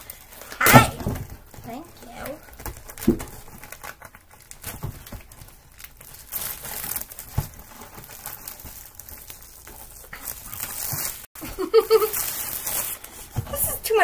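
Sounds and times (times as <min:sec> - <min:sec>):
plastic film crinkling: 0:00.0 - 0:14.0.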